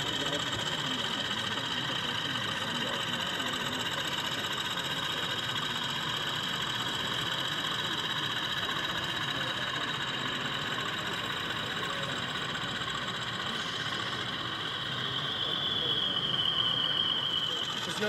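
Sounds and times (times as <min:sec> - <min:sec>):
model locomotive diesel engine sound: 0:00.0 - 0:18.0.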